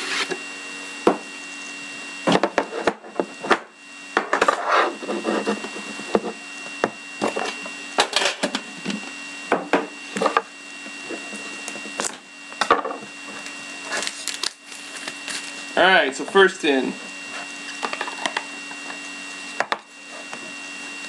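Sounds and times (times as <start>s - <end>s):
plastic wrap crinkling: 13.9s - 15.7s.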